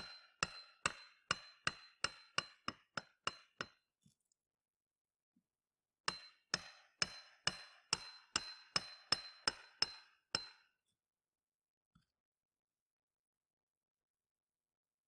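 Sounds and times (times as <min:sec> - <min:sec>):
hammer striking metal: 0:00.0 - 0:03.8, 0:06.1 - 0:10.7.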